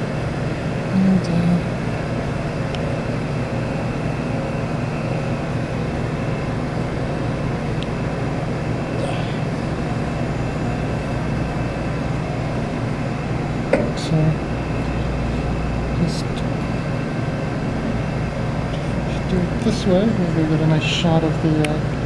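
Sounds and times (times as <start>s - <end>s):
low mechanical hum of machinery: 0.0s - 22.0s.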